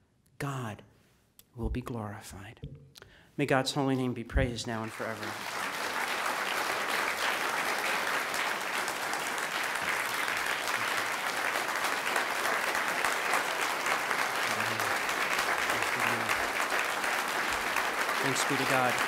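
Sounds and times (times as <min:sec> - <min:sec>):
audience applauding: 0:04.7 - 0:19.0.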